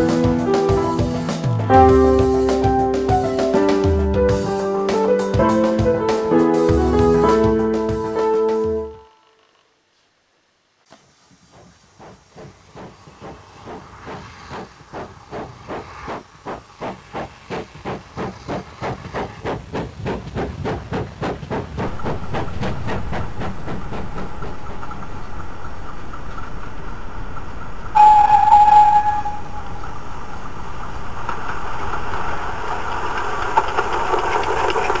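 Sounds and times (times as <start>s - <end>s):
steady hiss of steam: 10.8s - 35.0s
steam locomotive chuffing: 11.1s - 35.0s.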